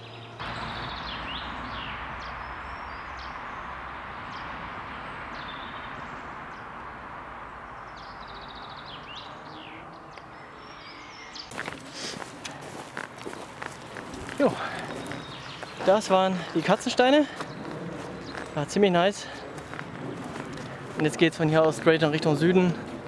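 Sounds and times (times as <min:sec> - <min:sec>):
small birds chirping: 0:00.0 - 0:23.0
steady rushing hiss: 0:00.4 - 0:09.7.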